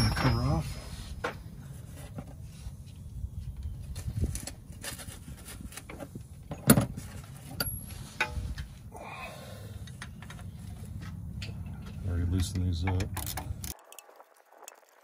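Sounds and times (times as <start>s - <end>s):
hand tools clinking on metal: 0.0s - 0.8s.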